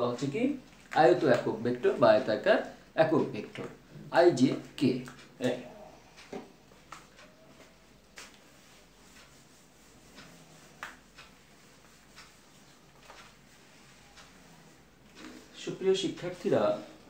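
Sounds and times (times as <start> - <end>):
duster wiping whiteboard: 5.5 - 17.0.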